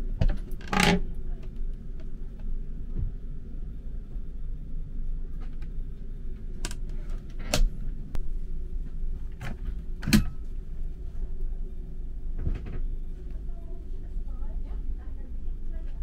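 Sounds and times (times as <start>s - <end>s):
train rumble: 0.0s - 16.0s.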